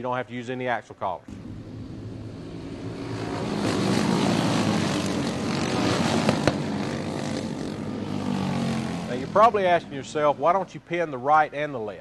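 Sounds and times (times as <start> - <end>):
go-kart engines racing: 1.3 - 10.7.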